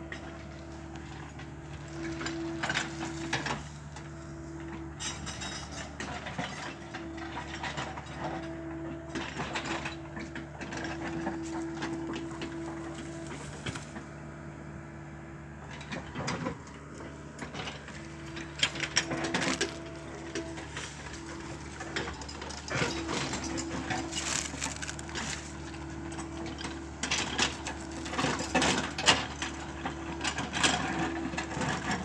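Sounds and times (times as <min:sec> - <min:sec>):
excavator diesel engine running: 0:00.0 - 0:32.0
cracks and clanks of scraping: 0:00.1 - 0:14.2, 0:15.6 - 0:32.0.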